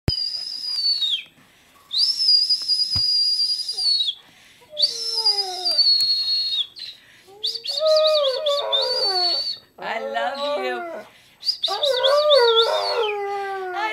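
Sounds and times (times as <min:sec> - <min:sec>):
high steady whistle tones: 0:00.1 - 0:09.7, 0:11.4 - 0:13.2
dog howling: 0:11.7 - 0:13.9.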